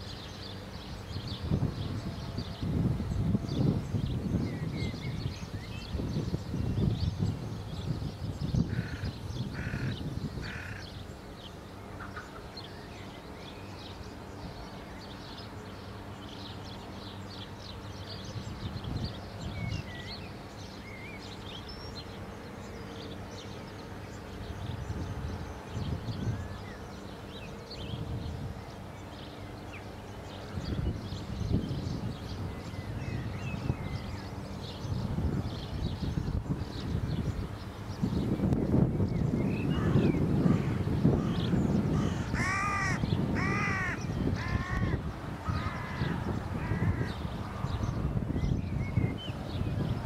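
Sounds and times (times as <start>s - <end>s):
small birds chirping: 0.0s - 50.0s
bird harsh calls: 8.5s - 11.0s, 39.2s - 48.6s.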